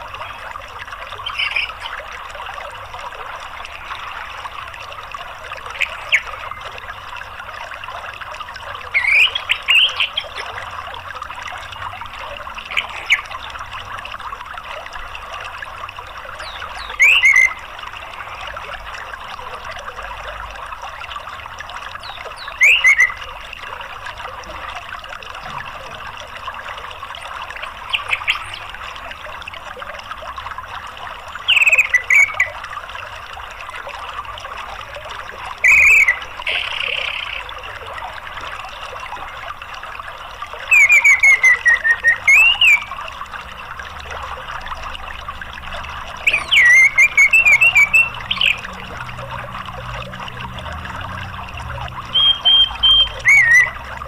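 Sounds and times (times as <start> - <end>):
running water: 0.0 - 54.0
bird chirps sweeping downward: 52.1 - 53.8.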